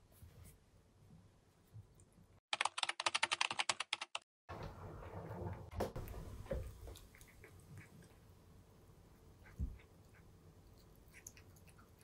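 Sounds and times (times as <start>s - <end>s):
rapid crisp clicks: 2.5s - 4.2s
cat chewing dry kibble: 9.4s - 12.0s.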